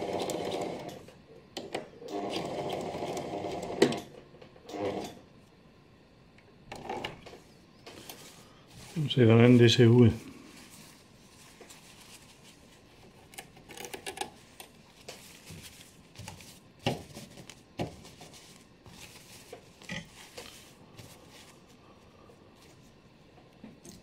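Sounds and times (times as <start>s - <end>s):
hands rustling stiff fabric: 7.9s - 13.1s, 14.4s - 23.0s.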